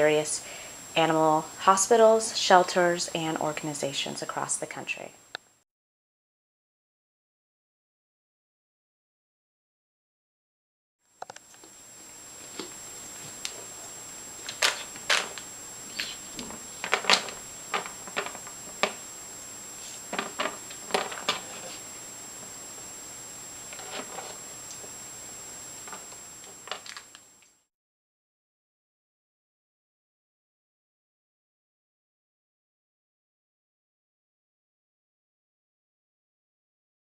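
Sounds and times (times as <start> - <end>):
steady hiss: 11.2 - 27.6
thin high whine: 11.2 - 27.7.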